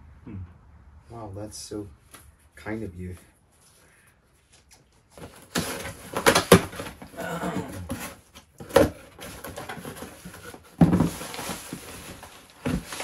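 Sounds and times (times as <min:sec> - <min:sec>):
cardboard boxes rustling and scraping: 0:05.1 - 0:13.0.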